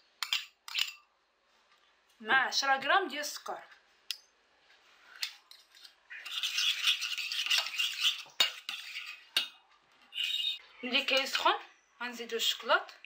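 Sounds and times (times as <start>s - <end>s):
spoon scraping saucepan: 5.0s - 11.5s.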